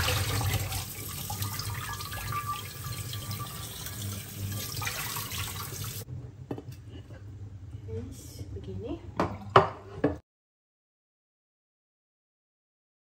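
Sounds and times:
water splashing off chicken: 0.0 - 2.8
tap water running into sink: 0.0 - 6.1.

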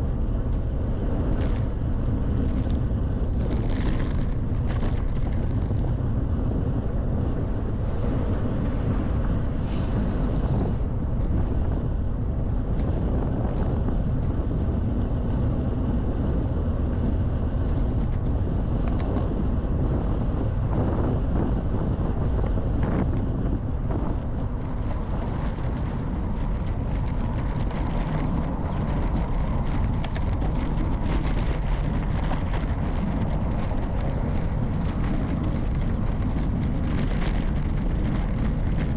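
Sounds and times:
wind buffeting microphone: 0.0 - 38.9
short high chirps: 9.8 - 10.9.

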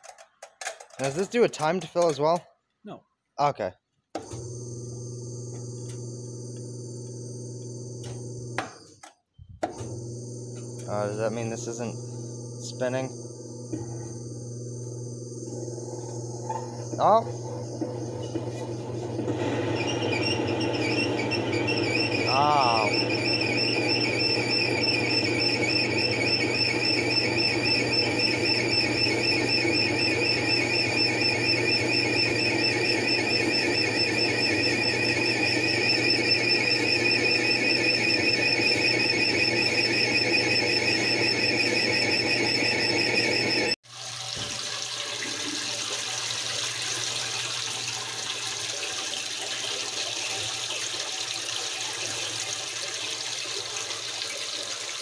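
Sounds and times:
washer warbling squeal: 15.7 - 55.0
water rushing into tub: 19.3 - 29.6, 43.8 - 55.0.

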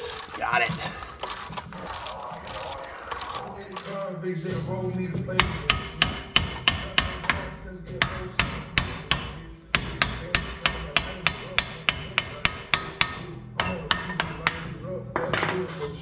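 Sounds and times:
hammer blows on metal: 5.3 - 14.7.

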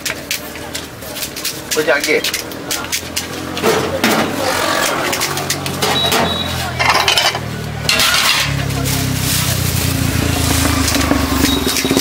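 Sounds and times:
plates and steel ware clattering: 5.2 - 8.7
low engine hum: 8.6 - 12.0.

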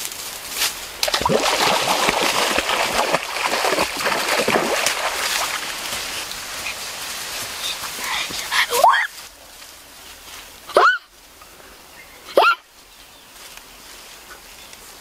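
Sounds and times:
water splashing and sloshing: 1.0 - 7.5.

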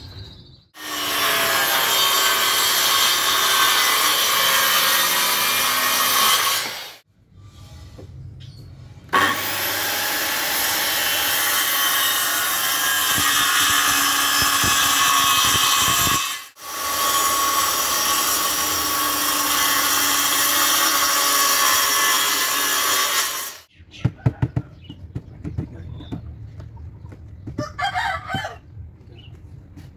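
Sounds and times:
circular saw cutting wood: 0.8 - 8.2, 9.0 - 23.7.

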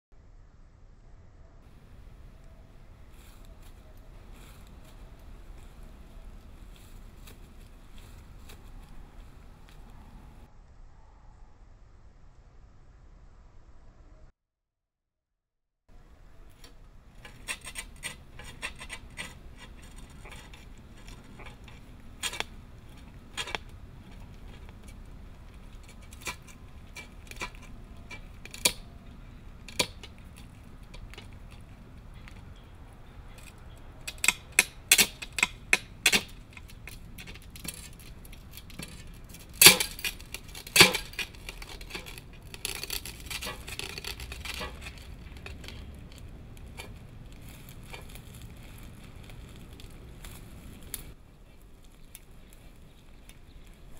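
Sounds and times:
mirror panels clinking and cracking: 17.2 - 28.9, 29.6 - 32.2, 33.3 - 49.8.

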